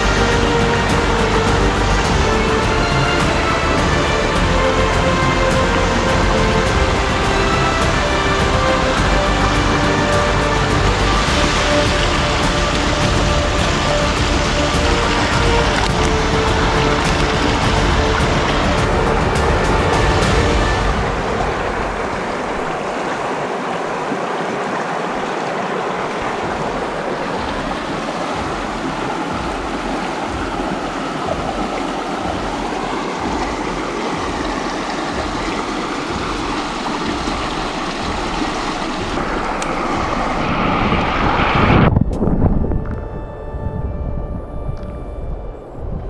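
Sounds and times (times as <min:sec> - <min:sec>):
creek water rushing: 0:00.0 - 0:44.2.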